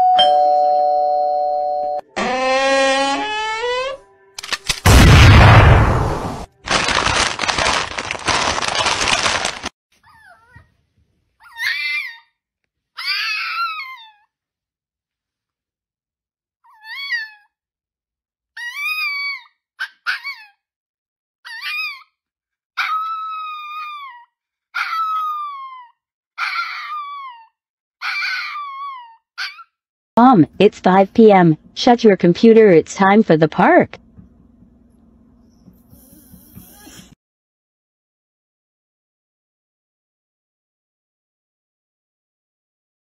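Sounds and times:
crisp packet crinkling: 6.6s - 9.7s
dog howling: 24.8s - 29.6s.

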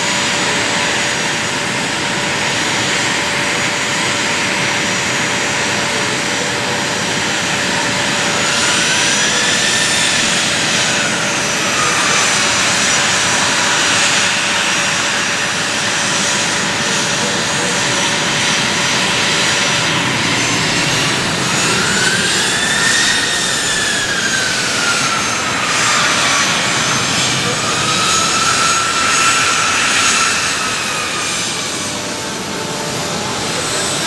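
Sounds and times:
engine whine: 0.0s - 34.0s
jet engines roaring: 0.0s - 34.0s.

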